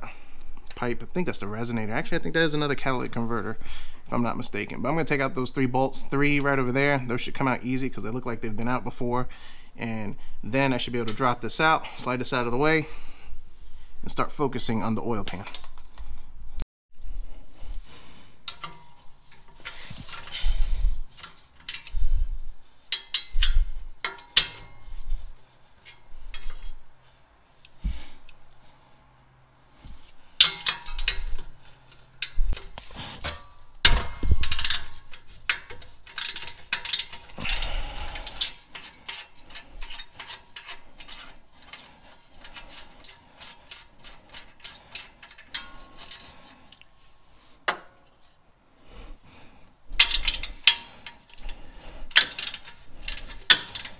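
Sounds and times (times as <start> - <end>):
metallic clanks of tools: 18.4 - 22.0, 22.9 - 25.0, 30.3 - 46.8, 49.9 - 53.9.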